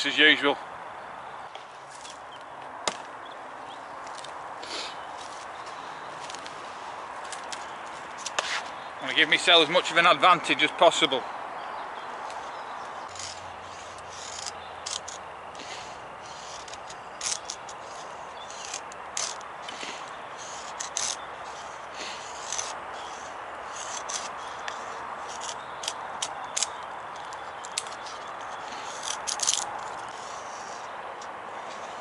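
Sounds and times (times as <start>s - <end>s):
knife shaving wood: 13.0s - 30.9s.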